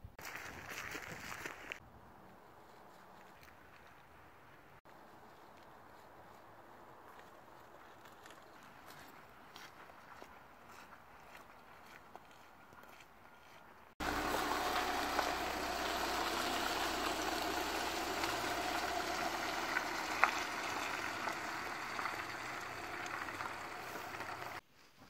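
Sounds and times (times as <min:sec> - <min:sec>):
van engine idling: 0:14.0 - 0:24.6.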